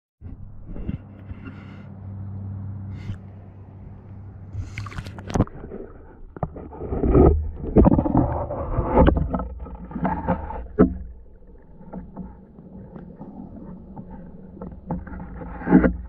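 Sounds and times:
muffled water sloshing underwater: 0.2 - 16.0.

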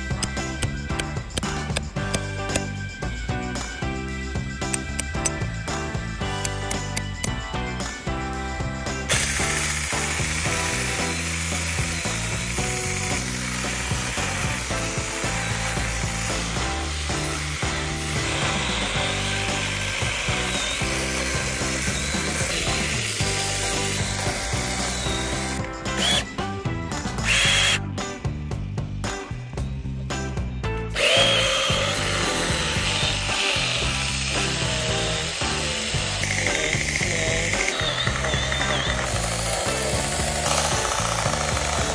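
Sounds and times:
background music: 0.0 - 41.9
chainsaw cutting wood: 9.1 - 26.3, 27.3 - 27.8, 31.0 - 41.9.

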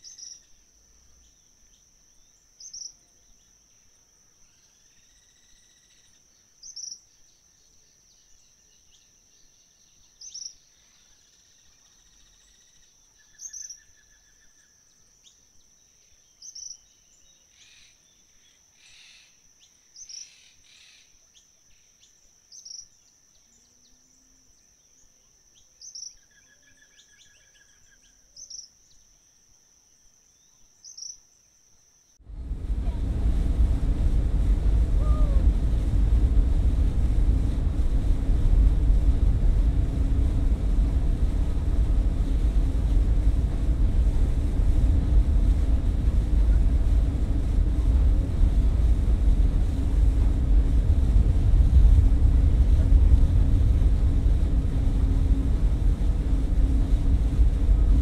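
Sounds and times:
high-pitched insect trill: 0.0 - 32.2
bird twitters and trills: 2.2 - 3.5, 24.9 - 29.0, 30.4 - 31.2.

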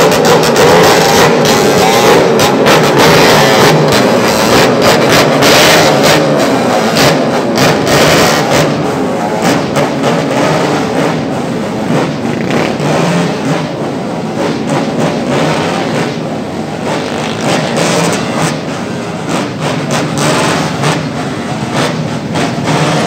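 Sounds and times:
motorcycles revving past: 14.9 - 23.0.

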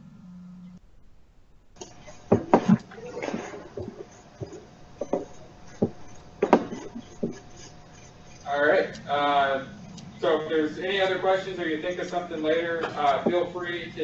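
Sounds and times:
sharp clicks and knocks: 1.8 - 7.7.

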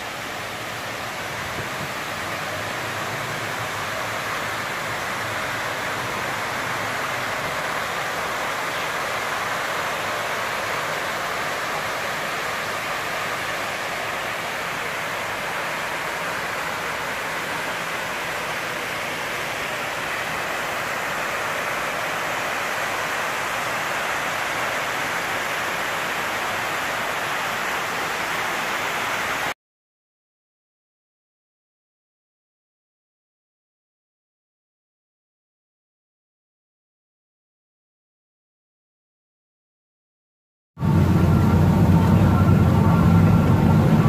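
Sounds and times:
rush of falling water: 0.0 - 29.6, 40.8 - 44.0.

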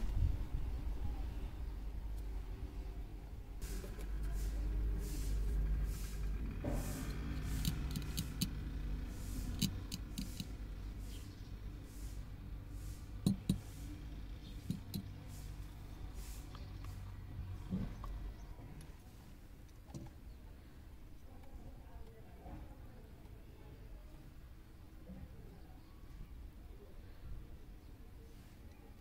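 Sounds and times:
low steady rumble: 0.0 - 23.3
ruler and marker clicks and taps: 7.0 - 8.6, 9.5 - 10.6, 13.2 - 13.7, 14.6 - 15.1.

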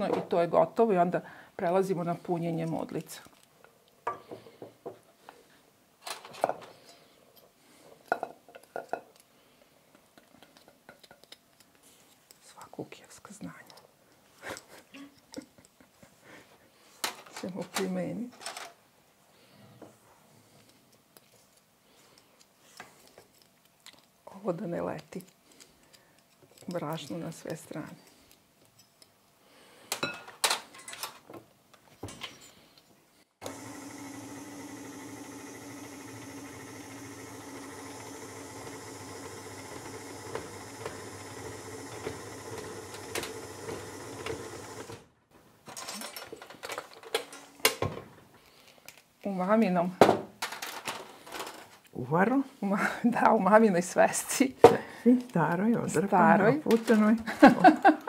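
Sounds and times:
clicks and knocks of handling mixer: 33.4 - 45.0
stand mixer motor humming: 33.4 - 45.0.

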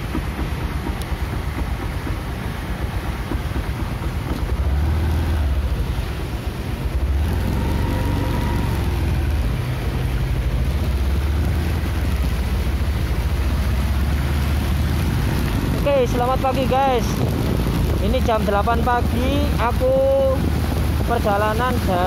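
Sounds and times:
traffic on wet road: 0.0 - 22.0
wind on microphone: 0.0 - 22.0.

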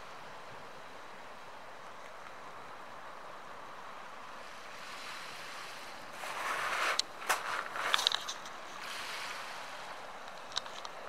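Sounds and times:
waves lapping on pebbles: 4.1 - 11.0.

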